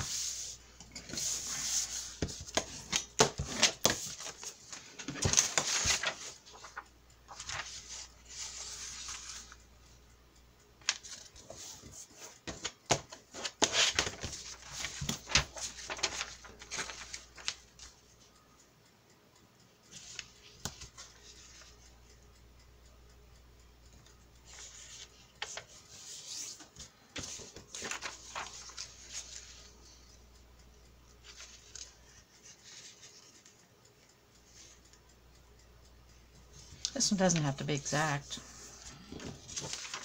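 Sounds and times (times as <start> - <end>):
paper pages rustling: 0.0 - 9.6, 10.8 - 17.9, 19.9 - 21.8, 24.5 - 29.6, 31.2 - 33.4, 39.1 - 40.0.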